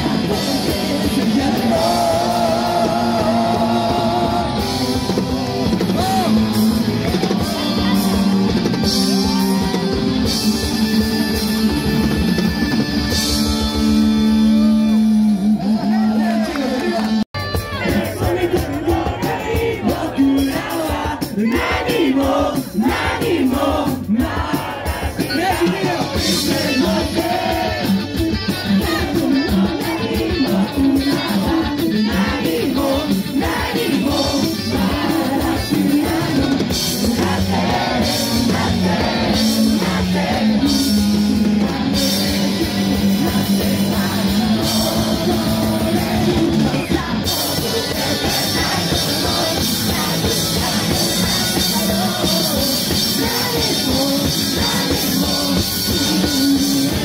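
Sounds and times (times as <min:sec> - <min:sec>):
live rock band with singing: 0:00.0 - 0:57.0.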